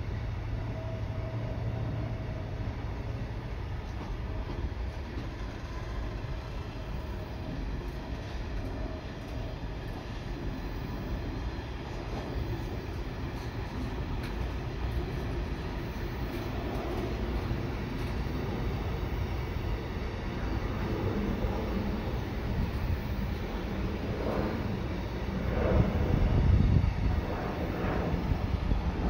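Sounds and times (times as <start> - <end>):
freight train rumbling: 0.0 - 29.0.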